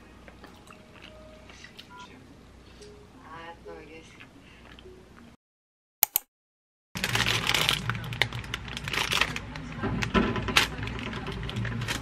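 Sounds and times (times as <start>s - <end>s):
sharp clicks: 6.0s - 6.3s
plastic bag crinkling: 7.0s - 12.0s.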